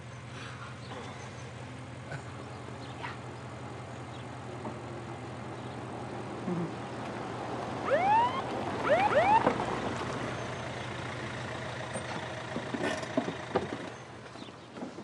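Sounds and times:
car engine running: 0:00.2 - 0:14.5
police siren whoops: 0:07.8 - 0:09.6.

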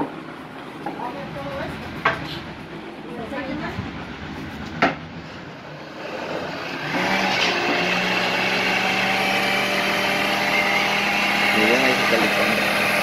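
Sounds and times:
blender motor running: 0:05.8 - 0:13.0.

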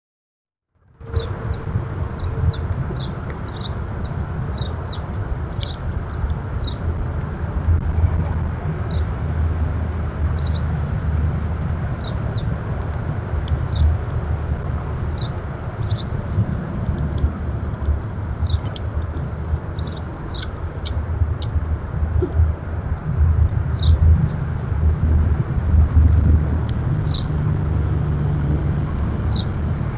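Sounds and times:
steady low rumble: 0:00.8 - 0:29.9
birds chirping: 0:01.0 - 0:07.0, 0:07.8 - 0:09.3, 0:10.2 - 0:10.8, 0:11.6 - 0:12.6, 0:13.5 - 0:22.6, 0:23.7 - 0:25.4, 0:26.9 - 0:27.8, 0:28.5 - 0:29.9.

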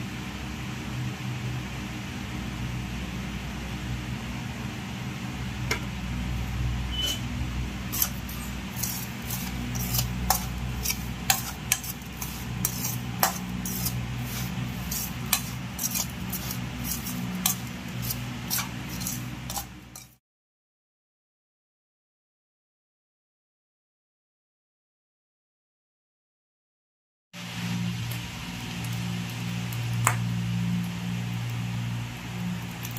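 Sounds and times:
steady low hum: 0:00.0 - 0:20.2
metal spoon scraping a steel bowl: 0:06.9 - 0:07.3, 0:07.9 - 0:20.2.

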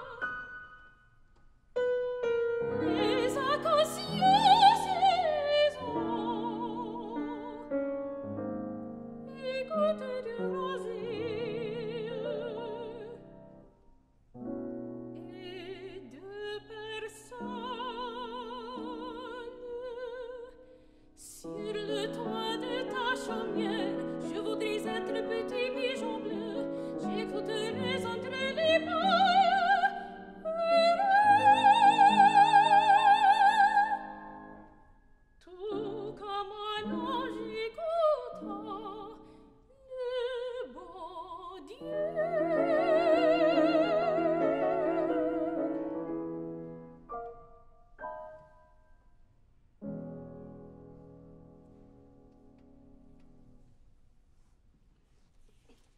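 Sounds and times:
soprano singing: 0:00.0 - 0:01.0, 0:02.6 - 0:13.8, 0:15.0 - 0:34.7, 0:35.4 - 0:46.8
grand piano accompaniment: 0:00.0 - 0:20.4, 0:21.2 - 0:34.8, 0:41.8 - 0:48.9, 0:49.8 - 0:53.8.

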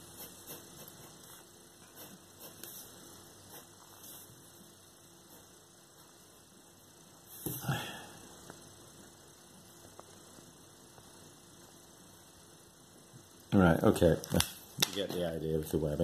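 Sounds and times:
pen scratching on paper: 0:00.0 - 0:04.3
steady low hum: 0:00.0 - 0:16.0.

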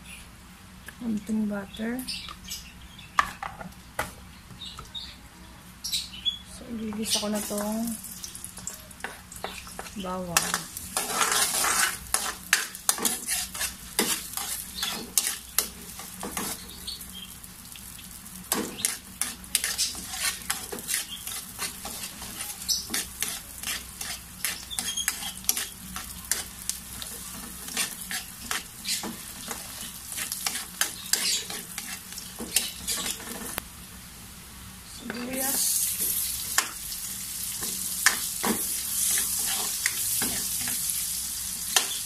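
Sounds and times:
garlic sizzling in oil: 0:06.7 - 0:42.0
metal ladle scraping wok: 0:09.8 - 0:16.6, 0:18.5 - 0:26.5, 0:27.3 - 0:33.6.

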